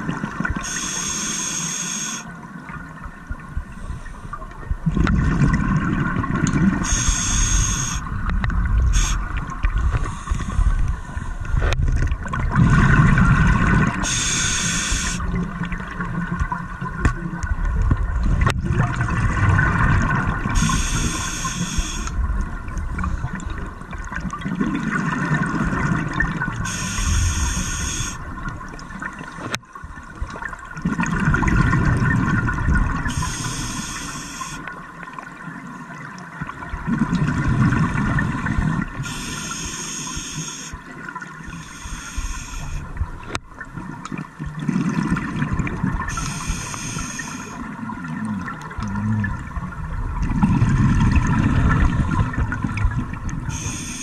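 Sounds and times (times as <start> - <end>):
regulator hiss on inhale: 0.6 - 2.3, 6.8 - 8.1, 8.9 - 11.6, 14.0 - 15.3, 20.6 - 22.2, 26.7 - 28.2, 33.1 - 34.7, 39.0 - 40.8, 41.5 - 43.0, 46.1 - 47.6, 53.5 - 54.0
bubbling of exhaled air: 3.6 - 34.6, 36.7 - 43.4, 44.2 - 54.0.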